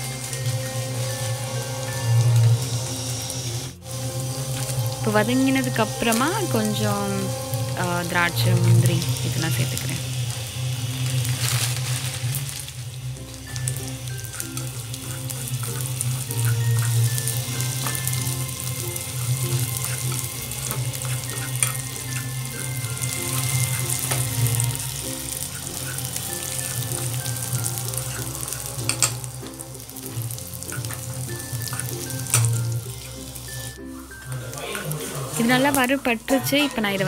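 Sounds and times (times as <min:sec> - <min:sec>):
background music: 0:00.0 - 0:37.0
nuts sizzling in a frying pan: 0:00.0 - 0:37.0
spatula scraping a pan: 0:04.3 - 0:33.4.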